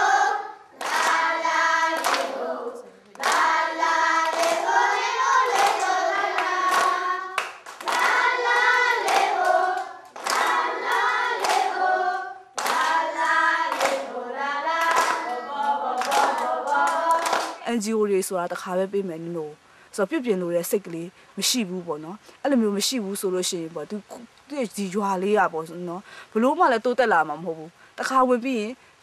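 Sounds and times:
children singing together: 0.0 - 17.6
hands clapping in time: 2.0 - 2.3, 3.2 - 3.5, 5.5 - 11.7, 12.6 - 13.0, 13.7 - 14.1, 14.8 - 17.6.

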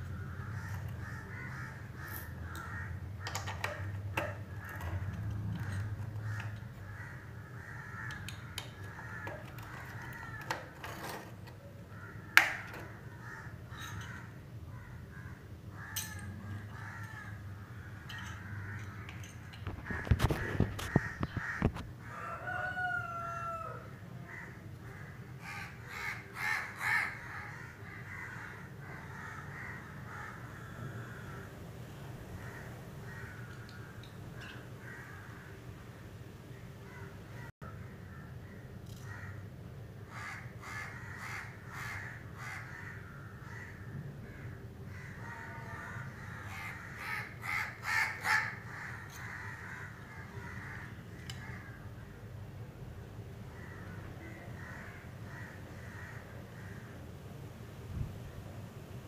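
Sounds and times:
birds calling: 0.0 - 23.7, 24.3 - 52.5
clicks and knocks of handling: 2.1 - 6.8, 8.1 - 11.6, 12.4 - 12.9, 18.1 - 21.9.

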